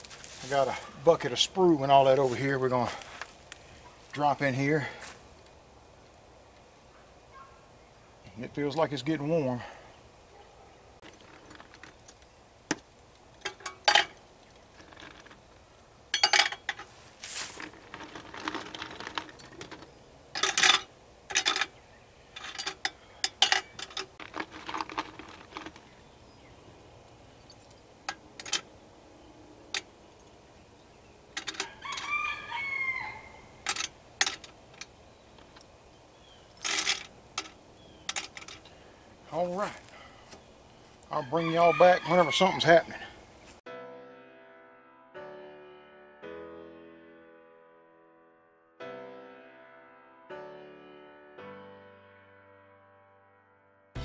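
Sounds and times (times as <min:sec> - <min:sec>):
scrap metal clinking into steel pot: 0:16.2 - 0:16.9
rooster crowing: 0:31.5 - 0:33.6, 0:41.1 - 0:43.2.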